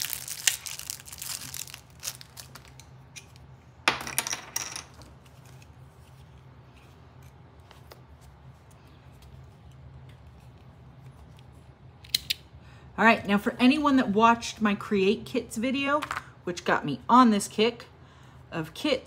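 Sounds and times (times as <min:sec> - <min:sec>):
packaging crinkling and tearing: 0:00.0 - 0:03.4.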